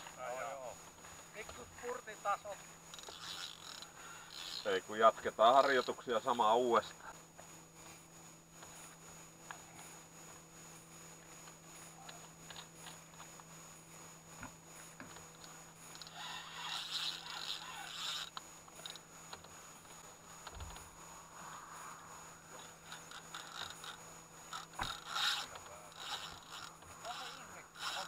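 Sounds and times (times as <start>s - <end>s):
spinning reel under load: 0.0s - 28.0s
scratchy reel line noise: 1.4s - 7.1s, 14.7s - 28.0s.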